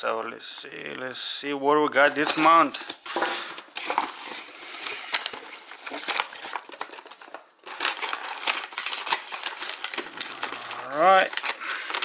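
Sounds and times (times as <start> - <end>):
tissue paper crinkling: 2.0 - 12.0.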